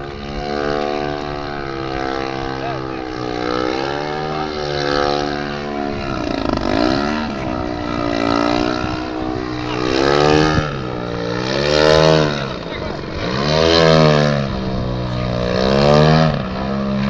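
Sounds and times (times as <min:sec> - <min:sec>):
model plane engine and propeller: 0:00.0 - 0:17.0.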